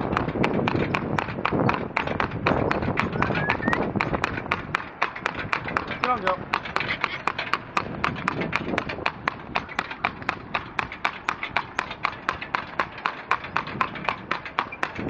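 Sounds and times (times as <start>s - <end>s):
hooves clip-clopping on tarmac: 0.0s - 15.0s.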